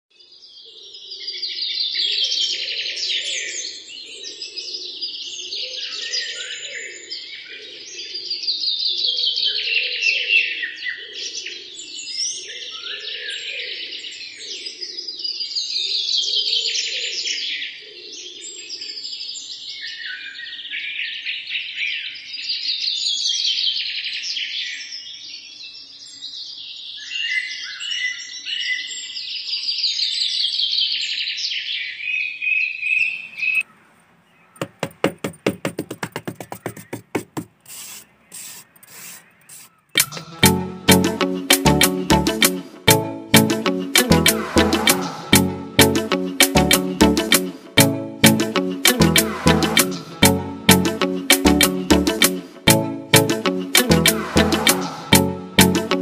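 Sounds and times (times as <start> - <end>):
birds chirping and trilling: 32.7 - 34.7.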